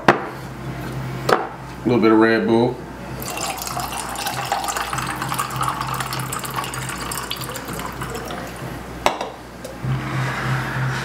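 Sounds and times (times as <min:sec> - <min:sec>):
carbonated drink fizzing: 0:03.2 - 0:08.6
drink pouring over ice: 0:03.2 - 0:08.6.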